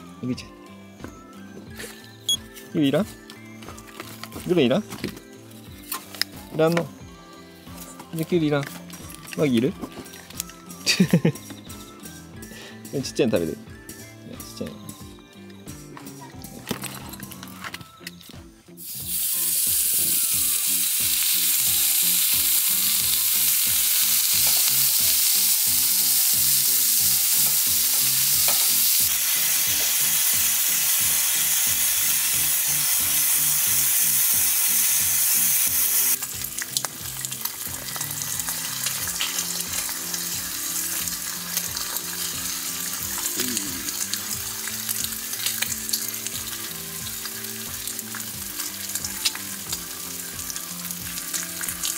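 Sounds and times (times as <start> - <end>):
meat sizzling on a griddle: 18.7 - 51.9.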